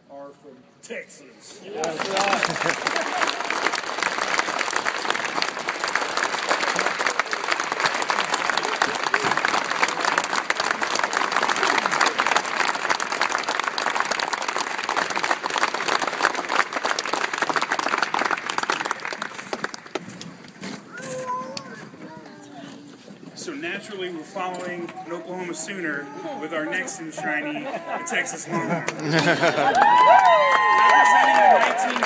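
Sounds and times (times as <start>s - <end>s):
audience applauding: 1.7s - 20.2s, 28.7s - 32.0s.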